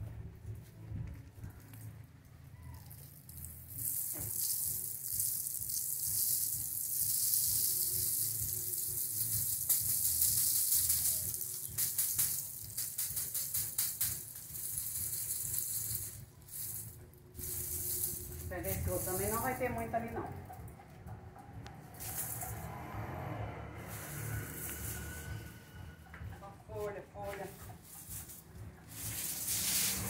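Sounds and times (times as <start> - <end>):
seeds rattling onto sheet: 2.7 - 20.1, 26.7 - 30.0
dry leaves rustling: 2.8 - 19.9, 23.8 - 25.7, 26.7 - 30.0.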